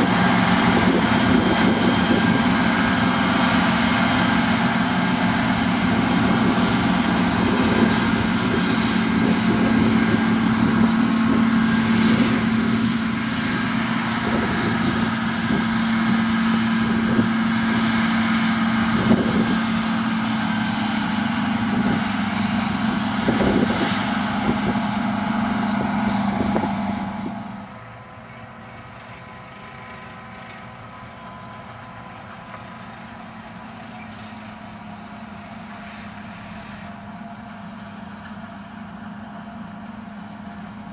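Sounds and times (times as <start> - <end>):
forage harvester engine humming: 0.0 - 40.9
tractor engine: 0.0 - 40.9.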